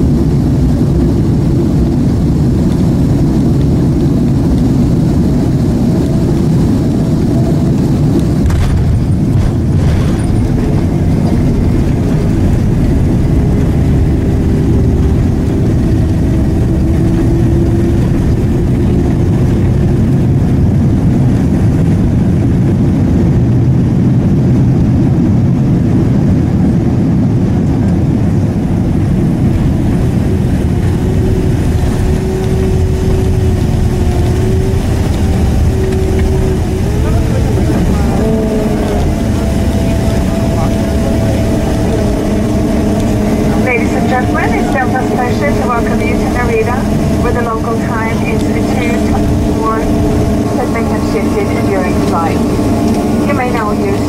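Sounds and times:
engines and rushing air rumble: 0.0s - 54.0s.

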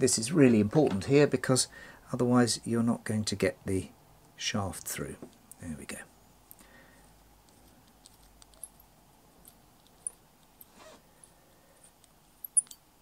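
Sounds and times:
soft rustle of hands: 7.0s - 12.4s.

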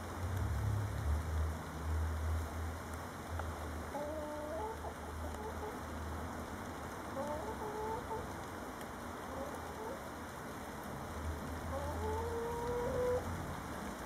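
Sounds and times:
hen clucking: 3.9s - 5.8s, 7.1s - 8.4s, 9.3s - 10.0s, 11.7s - 13.3s.

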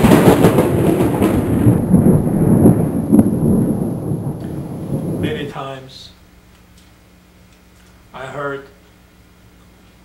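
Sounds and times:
rolling thunder: 0.0s - 5.9s.

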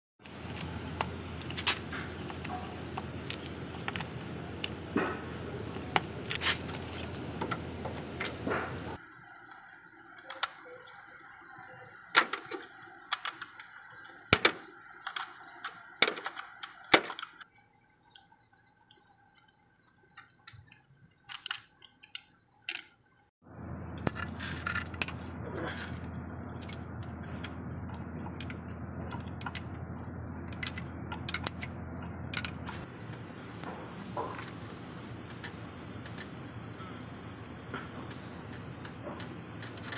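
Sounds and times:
steady low hum: 0.2s - 16.1s, 23.4s - 39.9s
hand tools clinking on metal: 30.4s - 31.7s.

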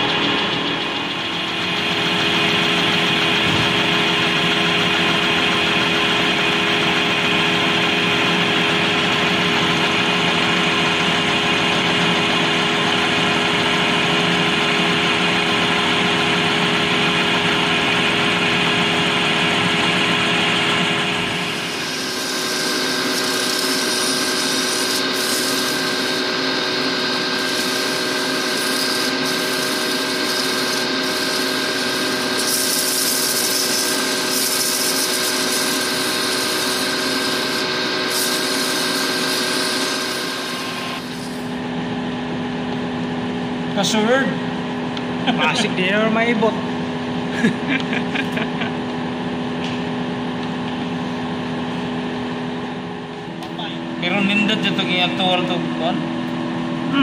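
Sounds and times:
lathe cutting plastic: 0.0s - 57.0s
lathe humming: 0.0s - 57.0s
sandpaper rubbing on spinning piece: 21.4s - 41.5s.

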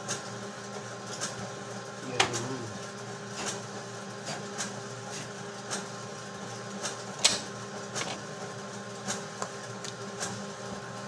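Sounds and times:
label printer humming: 0.0s - 11.0s.

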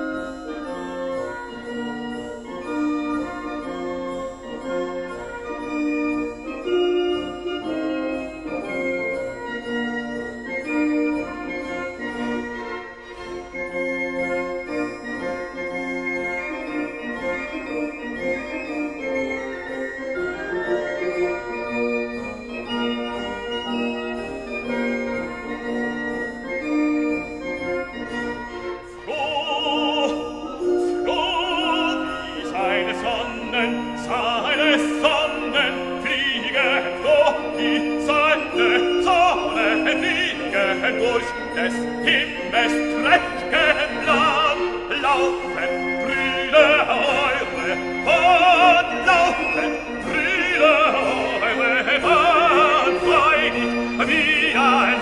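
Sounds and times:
slow instrumental music: 0.0s - 55.0s
operatic singing voice: 29.0s - 55.0s.

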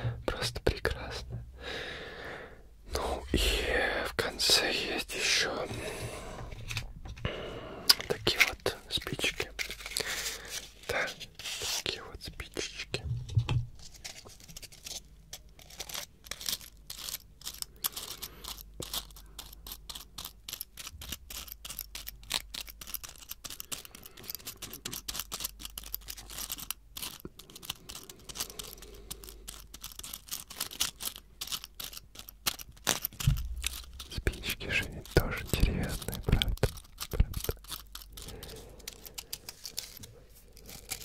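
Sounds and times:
fingers scratching and tapping box: 15.6s - 41.0s.

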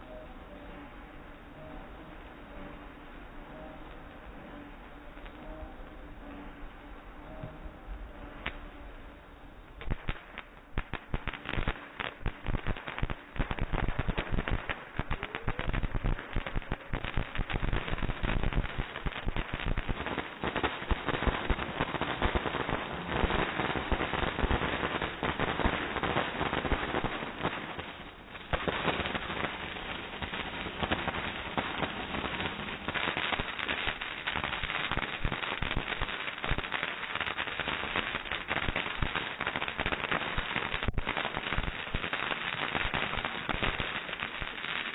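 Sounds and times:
fireworks fountains crackling: 9.7s - 44.9s.

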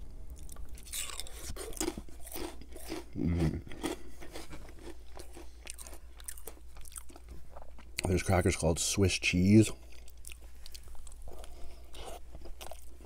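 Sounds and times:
cracker crunching: 0.3s - 8.2s
wet mouth sounds: 0.8s - 4.6s.

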